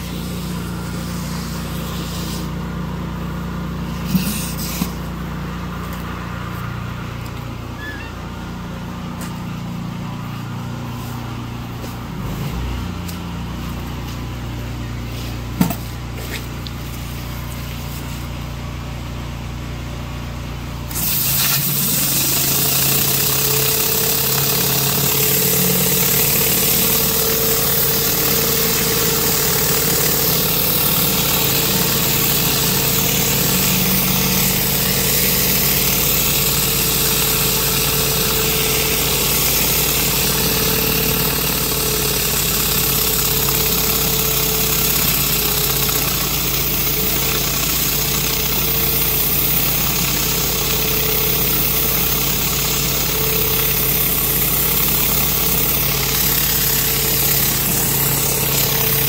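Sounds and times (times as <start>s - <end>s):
pressure washer engine running: 0.0s - 59.0s
water jets hissing on concrete: 21.0s - 59.0s.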